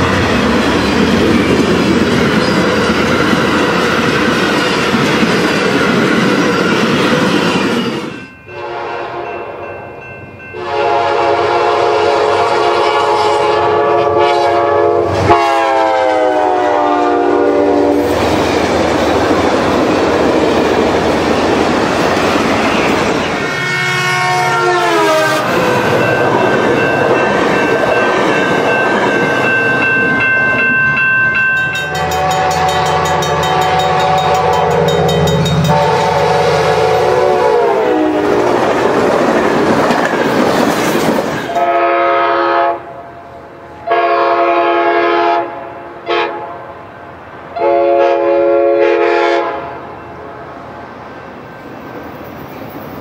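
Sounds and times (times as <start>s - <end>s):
train air horn blasts: 8.5s - 9.4s, 10.6s - 18.2s, 23.4s - 25.7s, 31.9s - 38.5s, 41.5s - 43.1s, 43.8s - 46.8s, 47.6s - 50.4s
train wheels clattering: 25.4s - 36.5s, 38.2s - 41.6s.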